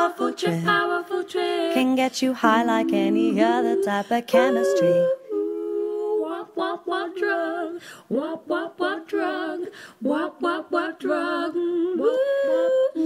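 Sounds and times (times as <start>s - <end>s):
woman singing wordless phrases: 0.0s - 13.0s.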